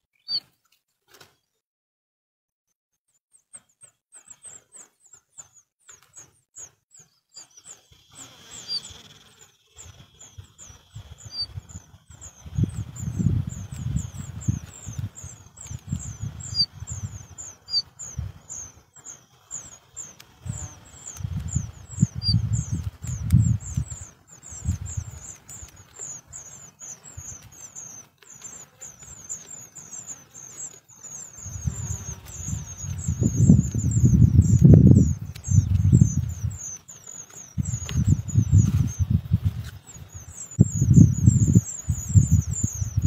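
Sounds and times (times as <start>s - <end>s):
nestlings chirping: 0.2s - 0.5s, 3.3s - 43.0s
wind rumble on microphone: 9.8s - 18.8s, 20.4s - 27.6s, 31.3s - 43.0s.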